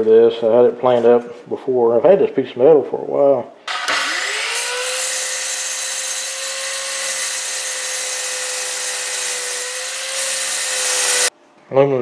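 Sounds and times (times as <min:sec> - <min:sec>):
chop saw motor running: 0:03.7 - 0:11.3
saw blade cutting metal hiss: 0:04.6 - 0:11.3.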